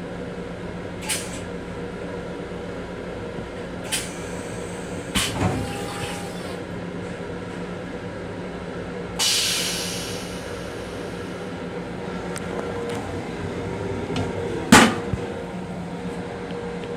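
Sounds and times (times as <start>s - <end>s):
railcar hum: 0.0s - 16.9s
air hiss: 9.2s - 11.5s.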